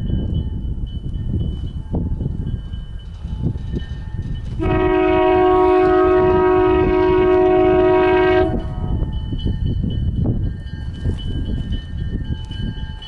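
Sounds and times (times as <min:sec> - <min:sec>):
locomotive air horn blast: 0:04.6 - 0:08.9.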